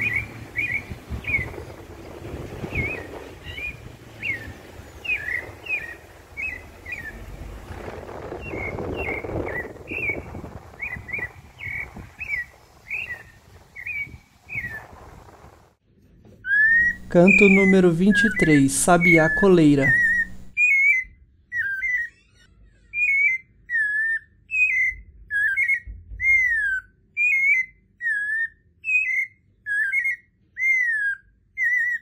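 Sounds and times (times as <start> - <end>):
thrush singing: 16.8 - 20.5.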